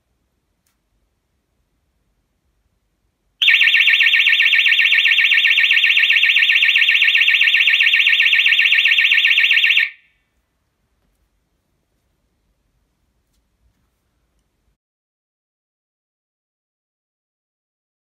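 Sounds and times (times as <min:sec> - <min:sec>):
alarm siren warbling: 0:03.4 - 0:10.1.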